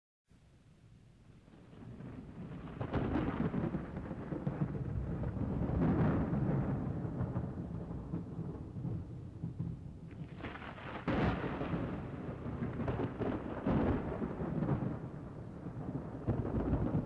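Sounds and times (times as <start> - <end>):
thunder rumbling: 1.5 - 17.0.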